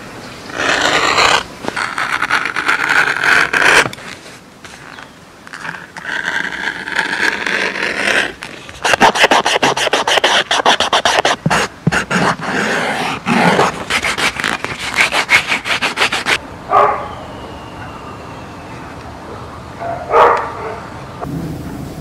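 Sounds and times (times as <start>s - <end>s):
fingertips rubbing leather: 0.5s - 16.4s.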